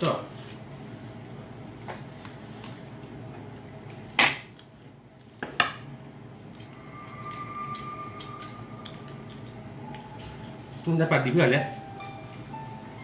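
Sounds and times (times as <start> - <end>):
faint high tone: 6.6 - 10.8.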